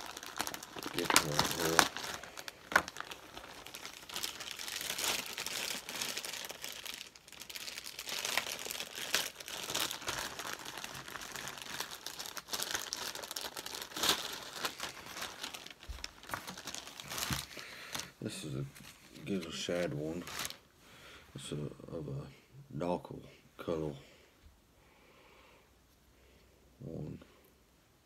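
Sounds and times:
plastic bag crinkling: 0:00.0 - 0:20.6.

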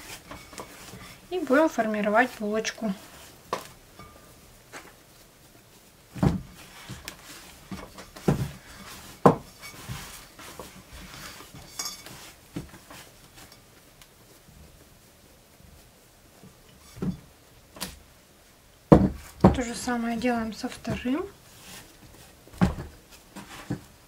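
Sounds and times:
hands kneading dough: 0:00.0 - 0:16.6.

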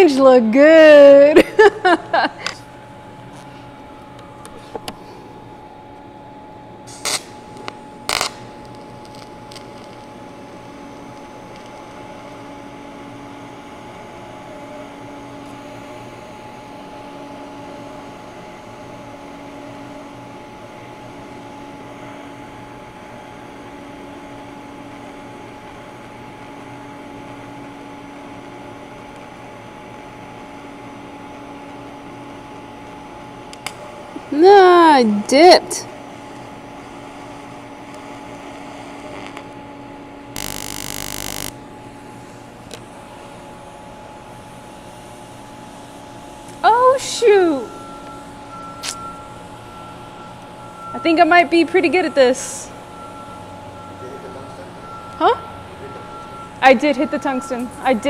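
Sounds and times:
welding arc humming and hissing: 0:06.8 - 0:16.1, 0:36.2 - 0:39.6, 0:40.4 - 0:43.6
sharp crackles: 0:07.0 - 0:10.1, 0:40.4 - 0:41.6.

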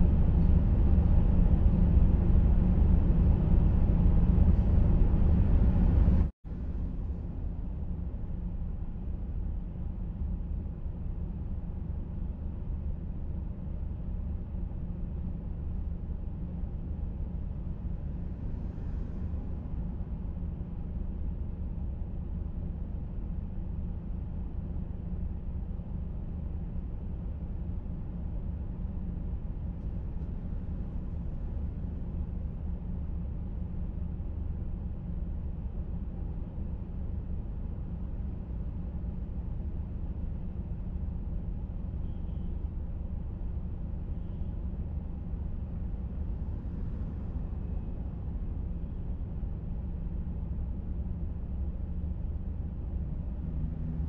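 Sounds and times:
car engine and road noise: 0:00.0 - 0:07.9, 0:17.6 - 0:22.0, 0:45.4 - 0:51.8, 0:52.5 - 0:54.0.

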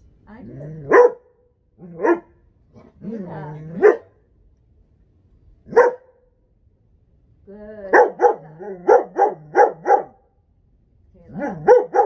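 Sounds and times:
young dog barking: 0:00.9 - 0:03.0, 0:03.7 - 0:04.1, 0:05.7 - 0:06.2, 0:07.9 - 0:10.2, 0:11.3 - 0:12.0.

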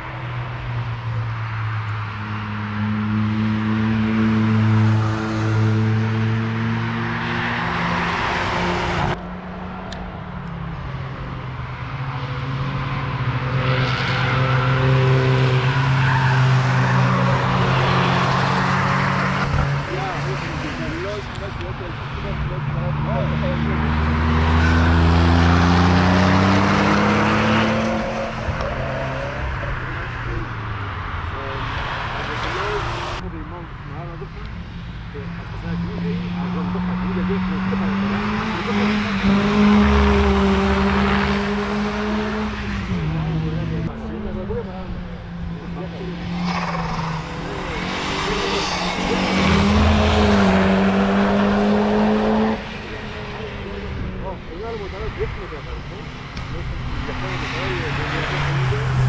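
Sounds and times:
car accelerating past: 0:10.8 - 0:33.2, 0:35.5 - 0:43.9, 0:44.9 - 0:54.2, 0:56.1 - 0:59.0.

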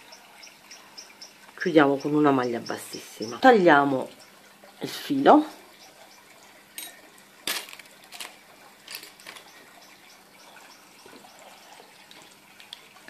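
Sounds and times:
small objects clicking and knocking: 0:07.5 - 0:09.6.

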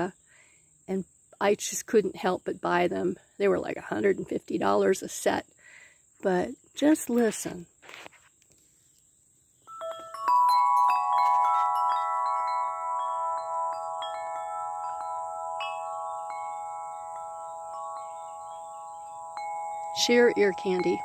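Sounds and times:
tubular wind chimes ringing: 0:09.6 - 0:21.0.

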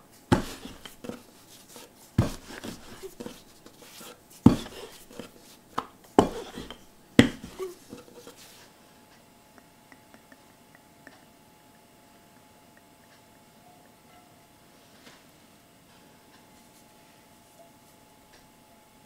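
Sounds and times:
rolling pin rolling dough: 0:00.1 - 0:08.7
sharp wooden knocks: 0:06.2 - 0:07.7.

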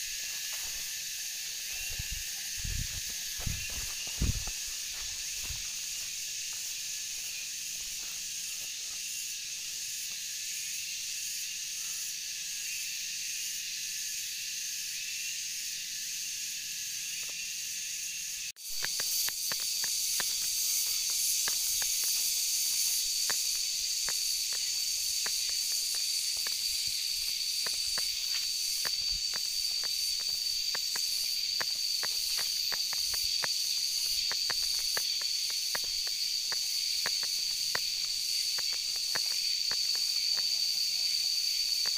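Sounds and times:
high insect drone: 0:00.0 - 0:41.9
insects buzzing: 0:00.0 - 0:41.9
footsteps on dirt trail: 0:00.1 - 0:09.1, 0:18.6 - 0:40.6.

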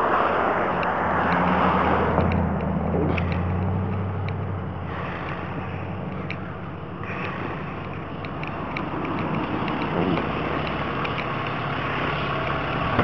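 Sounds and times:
rushing noise: 0:00.0 - 0:13.0
truck engine idling: 0:00.0 - 0:13.0.

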